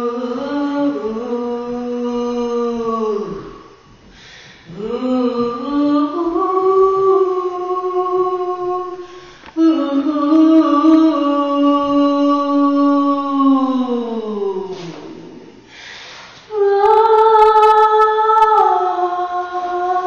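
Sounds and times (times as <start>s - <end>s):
woman singing long notes: 0.0s - 15.6s, 16.5s - 20.0s
breath between notes: 4.0s - 4.8s, 9.0s - 9.6s, 14.7s - 16.5s.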